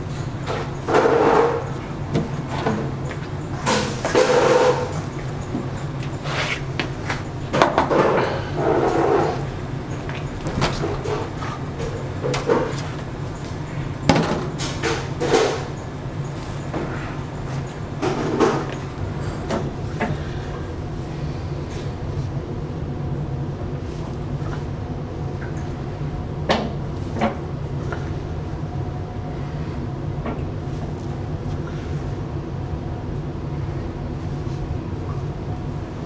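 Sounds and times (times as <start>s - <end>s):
low machine hum: 0.0s - 36.0s
metal trays clanking on table: 3.6s - 5.0s.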